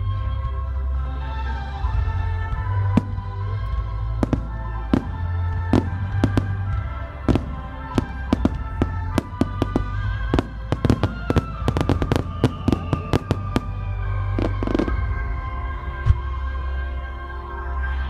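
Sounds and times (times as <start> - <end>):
music with long held tones: 0.0 - 18.0
fireworks bursting with bangs: 2.4 - 16.4.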